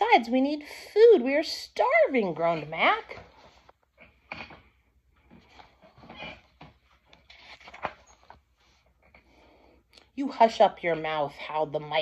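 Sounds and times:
book rustling and knocking: 7.4 - 8.4.

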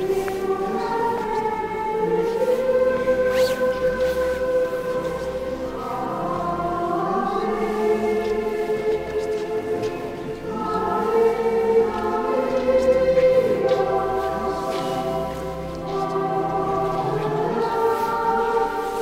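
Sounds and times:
voices singing a slow hymn: 0.0 - 19.0.

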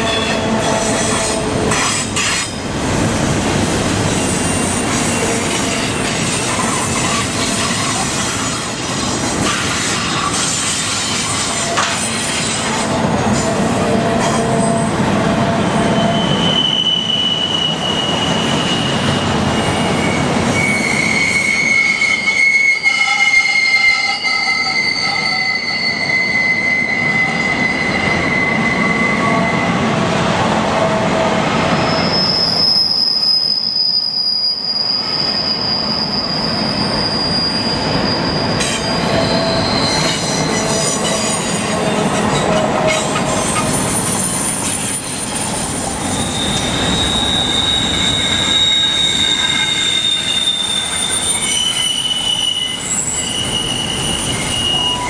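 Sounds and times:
train wheels squealing: 0.0 - 2.6, 3.9 - 30.0, 31.0 - 55.0
train rumble: 0.0 - 33.0, 34.9 - 55.0.

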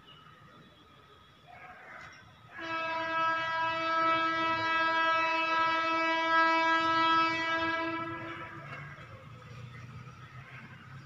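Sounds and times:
train horn blast: 2.5 - 9.0.

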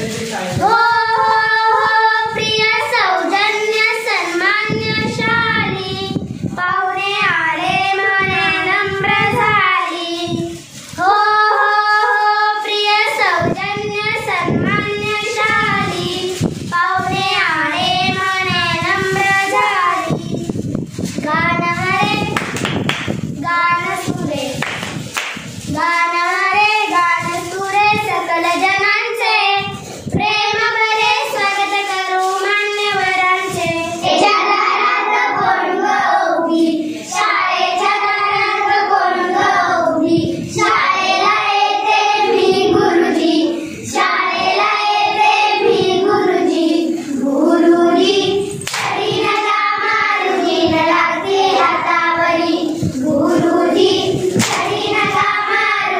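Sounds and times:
children singing together: 0.0 - 22.6, 25.6 - 55.9
hand claps: 22.4 - 23.2, 24.6 - 25.5, 48.6 - 49.0, 54.4 - 54.7.

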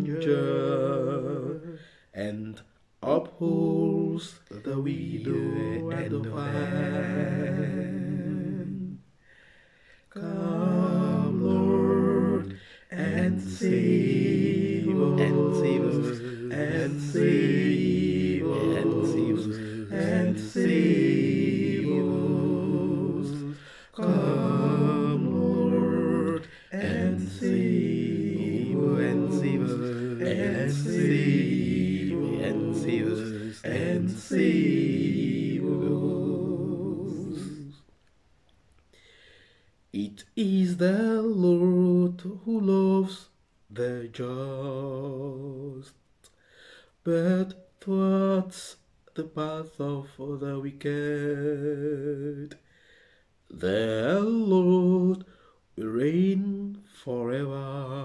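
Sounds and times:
man singing harmonised a cappella: 0.0 - 9.4, 10.0 - 37.9, 39.9 - 46.1, 46.9 - 52.8, 53.4 - 58.0
short breaths: 9.2 - 10.1, 38.9 - 39.8, 46.3 - 47.0, 52.6 - 53.4.

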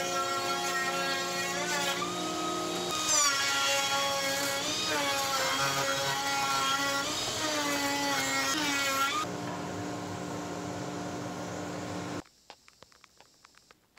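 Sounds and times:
router cutting wood: 0.0 - 9.3.

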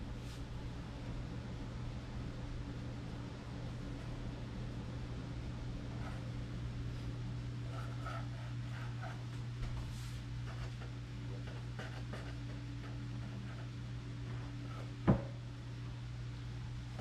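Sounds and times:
steady low hum: 0.0 - 17.0
knife scraping dough: 7.6 - 9.3.

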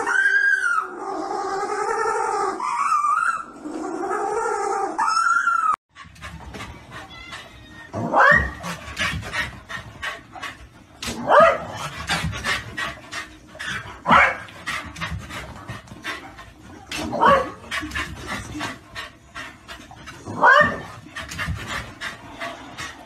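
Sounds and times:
dog yelping: 1.8 - 3.6, 4.7 - 5.8, 6.9 - 8.8.

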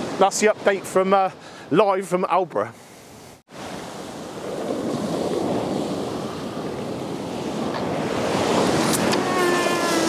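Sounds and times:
wind on microphone: 3.2 - 10.0
surf breaking on beach: 3.5 - 10.0.

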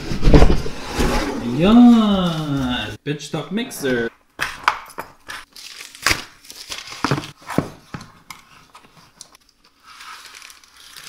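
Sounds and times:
packing tape tearing: 9.8 - 11.0.

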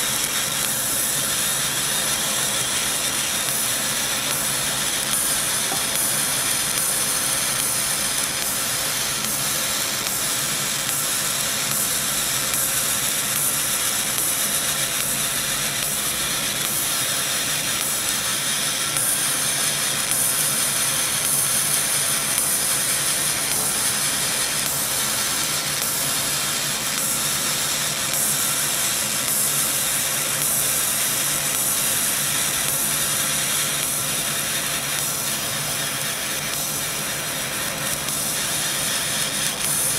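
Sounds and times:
laser cutter hissing: 0.0 - 39.9.

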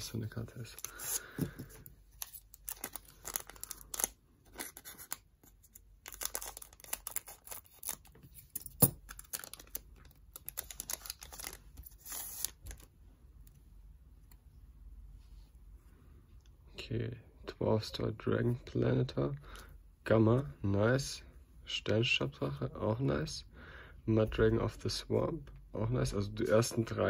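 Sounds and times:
foil wrapper crinkling: 2.2 - 5.2, 6.0 - 8.2, 9.0 - 12.9.

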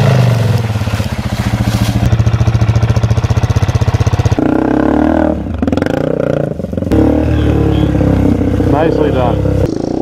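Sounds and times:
dirt bike engines chugging: 0.0 - 10.0.

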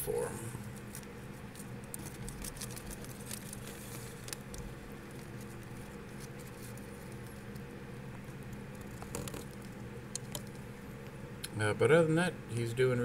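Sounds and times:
steady low hum: 0.0 - 13.0
plastic bag crinkling: 0.8 - 10.5.

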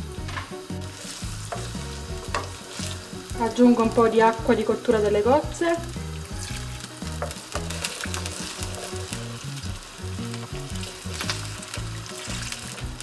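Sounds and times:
food sizzling in oil: 0.0 - 13.0
wooden spoon stirring: 6.2 - 9.4.

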